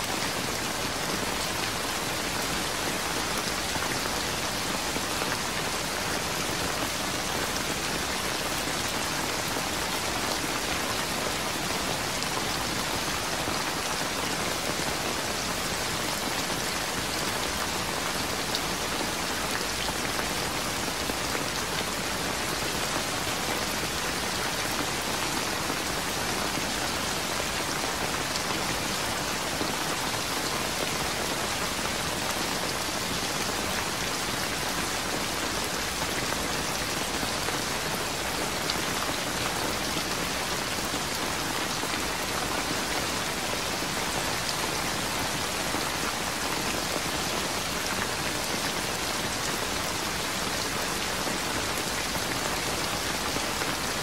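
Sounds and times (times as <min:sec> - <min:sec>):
steady rain: 0:00.0 - 0:54.0.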